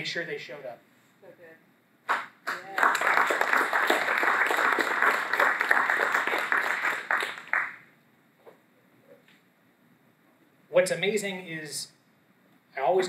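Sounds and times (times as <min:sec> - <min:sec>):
audience applauding: 0:02.1 - 0:07.9.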